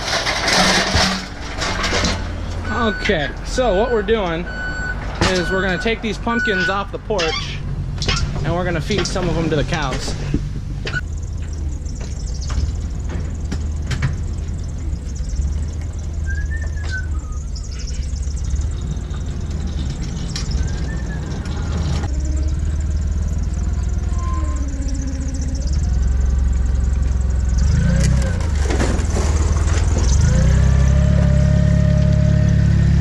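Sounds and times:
boxes knocking and clanking: 0.0 - 3.2, 8.0 - 14.9, 28.1 - 30.6
vehicle engine idling: 0.0 - 33.0.

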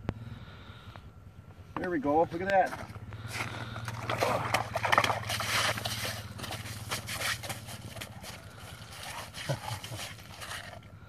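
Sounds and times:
fish flapping on snow: 3.2 - 10.9
fish splashing in water: 3.7 - 10.9.

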